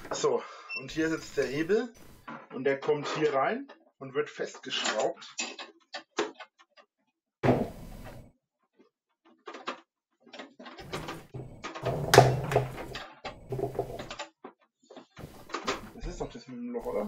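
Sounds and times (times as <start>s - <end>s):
clatter and knocks of machine parts: 4.6s - 6.8s, 9.3s - 16.4s.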